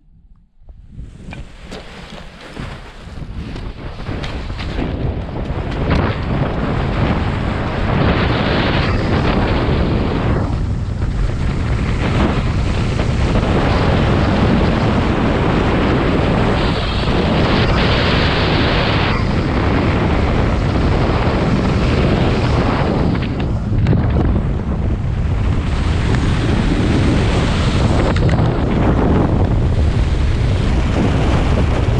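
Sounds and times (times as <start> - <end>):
wind buffeting microphone: 0.0 - 31.9.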